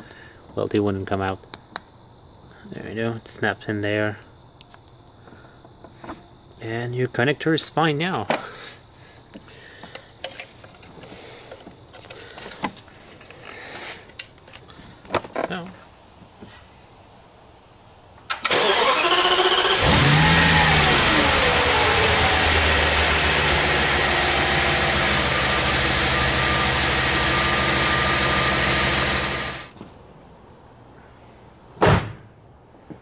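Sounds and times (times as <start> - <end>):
car engine starting and idling: 18.3 - 29.8.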